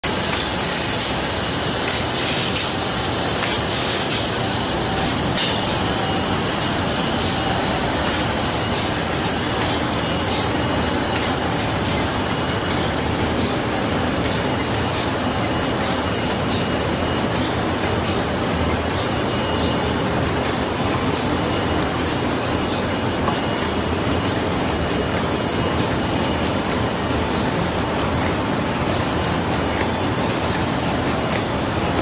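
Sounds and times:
machine mechanical clatter: 0.0s - 32.0s.

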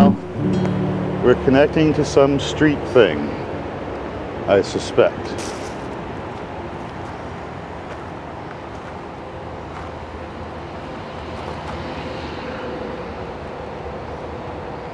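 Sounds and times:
distant road traffic: 0.0s - 14.9s
footsteps on dirt path: 5.4s - 10.0s.

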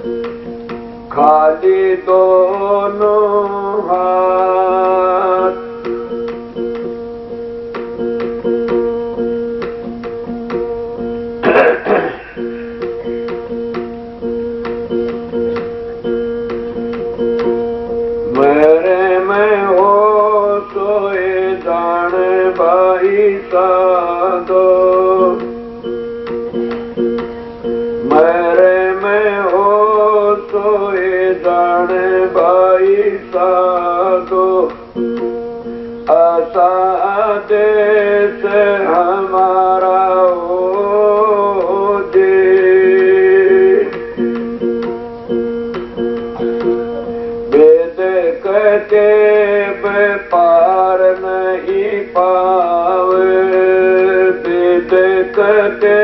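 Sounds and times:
plucked-string drone: 0.0s - 56.0s
person singing devotional song: 1.1s - 6.0s, 18.3s - 25.6s, 28.0s - 35.0s, 36.0s - 44.6s, 47.5s - 56.0s.

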